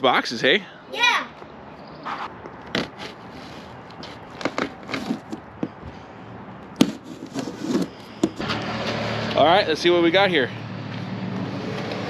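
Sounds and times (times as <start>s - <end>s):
cardboard boxes being handled: 2.7s - 5.8s, 6.8s - 8.4s.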